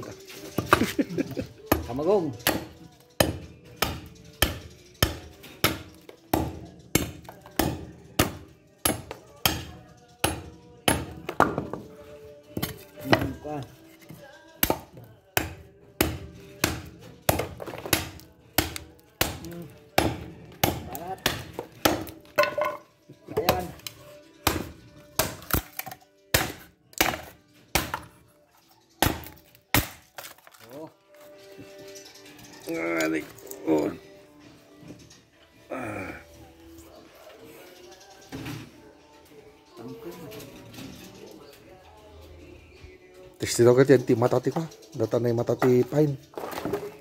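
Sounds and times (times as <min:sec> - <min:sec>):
machete chopping into wood: 0:14.6 - 0:22.8, 0:24.5 - 0:28.1, 0:29.0 - 0:30.5.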